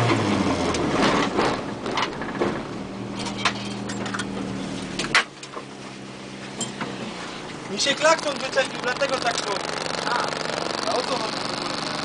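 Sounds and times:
car engine slowing and idling: 0.0s - 12.0s
knocks and rattles: 0.9s - 5.7s.

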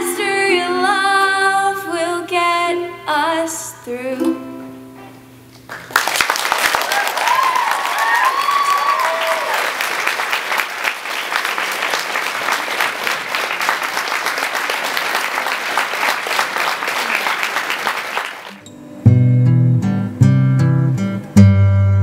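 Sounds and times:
acoustic guitar instrumental: 3.9s - 5.7s, 18.5s - 22.0s
audience applauding: 5.7s - 18.6s.

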